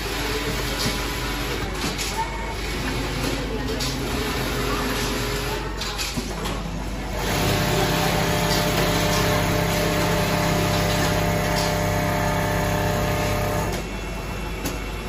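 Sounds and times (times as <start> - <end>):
sewing machine humming: 0.0 - 1.8, 2.5 - 5.8, 7.0 - 13.9.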